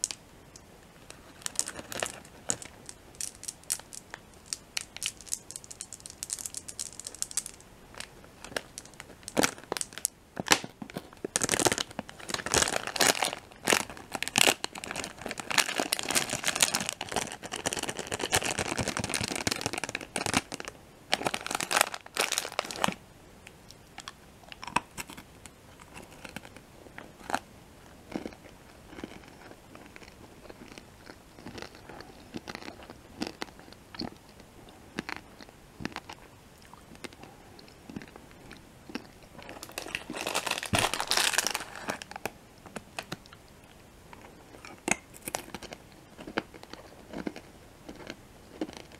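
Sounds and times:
plastic bag crinkling: 1.1 - 23.0, 38.9 - 42.3
mouth clicks and chewing: 28.1 - 39.5.

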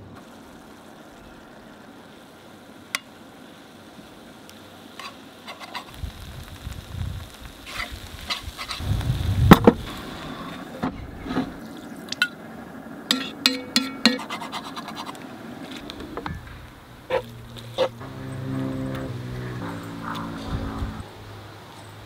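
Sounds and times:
metal spoon scraping skillet: 5.0 - 5.9, 13.1 - 15.2, 17.1 - 18.0.

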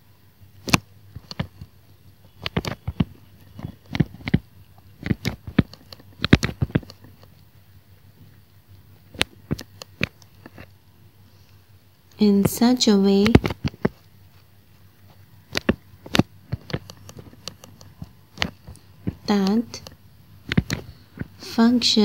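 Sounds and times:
stylus tapping on tablet screen: 2.3 - 7.4, 12.2 - 14.1, 15.1 - 21.9.

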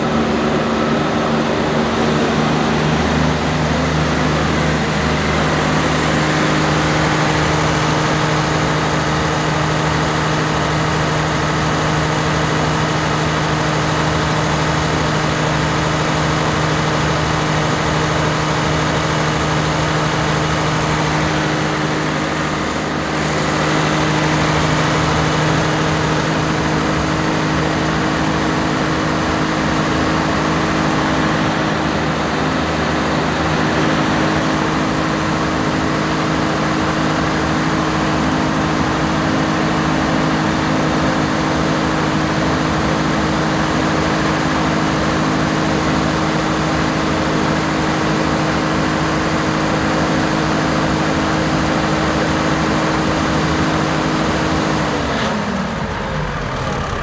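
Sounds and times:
diesel engine running steadily: 0.0 - 57.0.

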